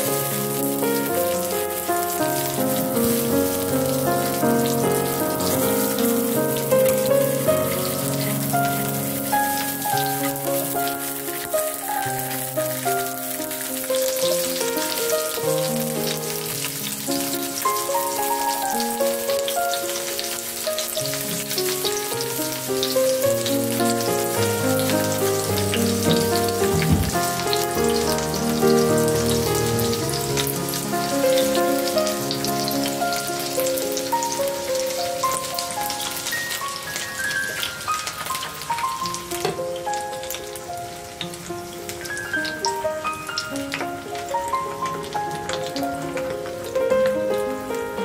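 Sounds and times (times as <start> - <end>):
background music melody: 0.0 - 48.0
fruit sizzling in hot oil: 0.0 - 48.0.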